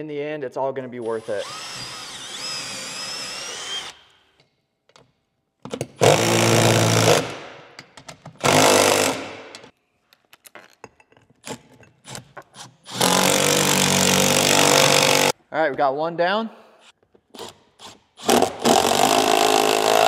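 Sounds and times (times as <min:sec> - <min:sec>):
cordless drill spinning: 0:01.2 - 0:04.0.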